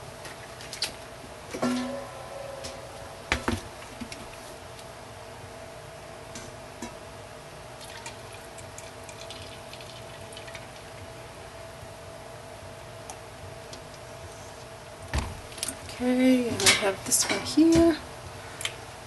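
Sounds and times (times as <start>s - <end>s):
thick liquid pouring into a pot: 7.8s - 11.0s.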